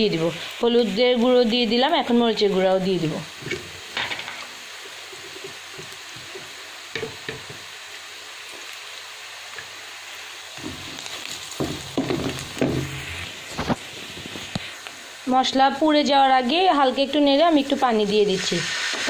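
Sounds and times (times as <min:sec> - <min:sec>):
onions sizzling in hot oil: 0:00.0 - 0:19.0
wooden spatula knocking: 0:11.6 - 0:12.9.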